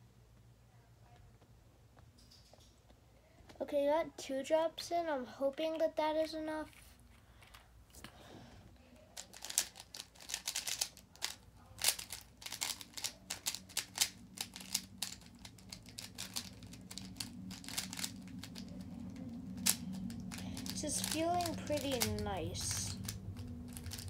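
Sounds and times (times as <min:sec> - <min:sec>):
puzzle cube clicking as turned: 0:09.2 - 0:24.0.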